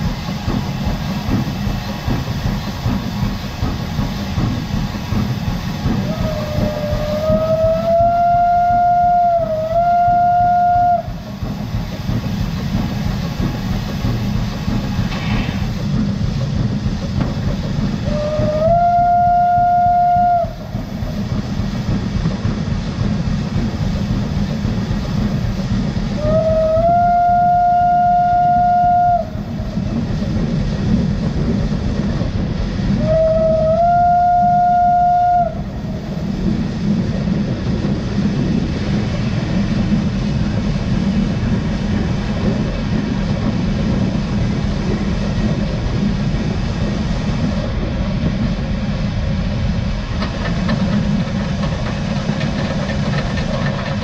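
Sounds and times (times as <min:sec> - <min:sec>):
train rumbling on track: 0:00.0 - 0:54.0
steam locomotive whistle: 0:05.8 - 0:11.2, 0:18.0 - 0:20.8, 0:26.2 - 0:29.8, 0:33.0 - 0:36.0.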